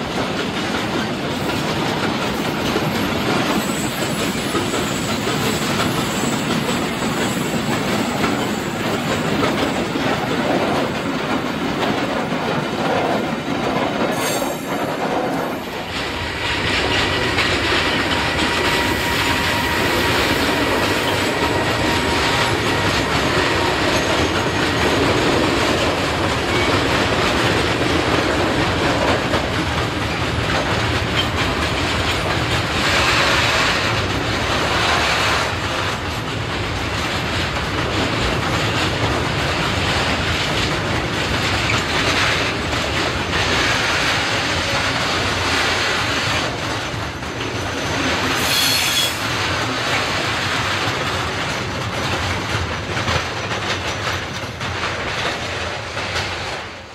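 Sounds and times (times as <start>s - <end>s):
freight train wheels on rails: 0.0s - 56.9s
high-pitched wheel squeal: 18.2s - 24.3s, 48.4s - 49.3s.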